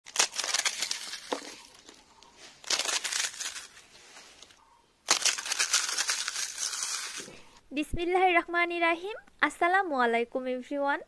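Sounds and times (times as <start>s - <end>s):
crisp papad crunching: 0.0s - 4.5s, 5.1s - 7.3s.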